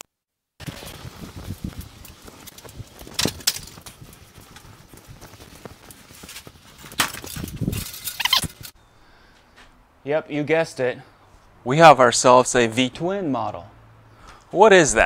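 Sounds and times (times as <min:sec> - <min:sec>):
hand truck wheels clattering on concrete: 0:00.6 - 0:08.8.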